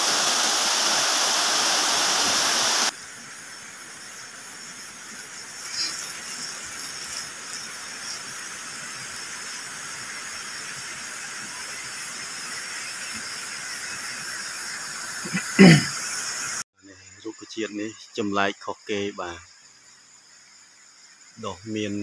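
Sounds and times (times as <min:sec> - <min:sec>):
water running over rock: 0:00.0 - 0:03.0, 0:04.9 - 0:13.6.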